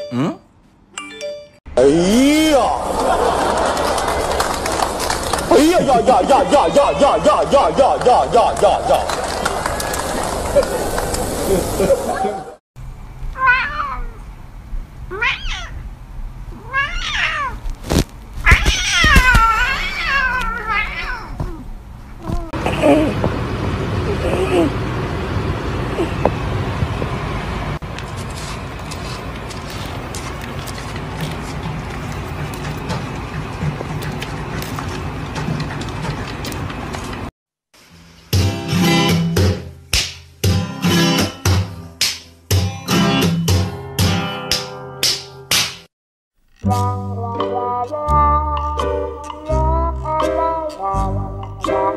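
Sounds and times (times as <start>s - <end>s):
cat meowing: 13.3s - 14.2s, 15.1s - 15.8s, 16.5s - 17.6s, 18.4s - 21.6s.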